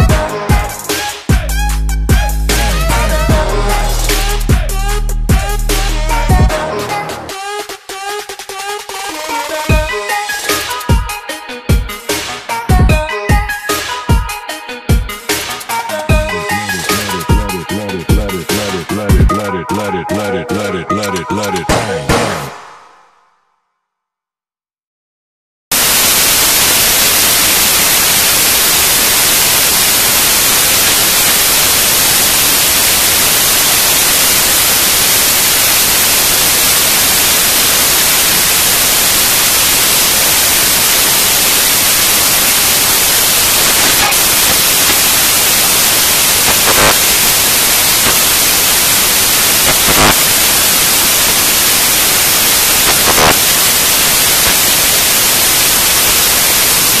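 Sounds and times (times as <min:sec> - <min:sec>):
static hiss: 0:15.3 - 0:18.9, 0:25.7 - 0:57.0.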